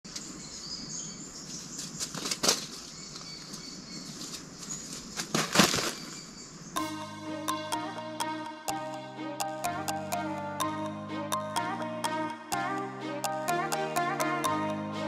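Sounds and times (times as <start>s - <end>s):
faint birdsong: 0.0s - 7.0s
bird wing flaps: 4.2s - 6.2s.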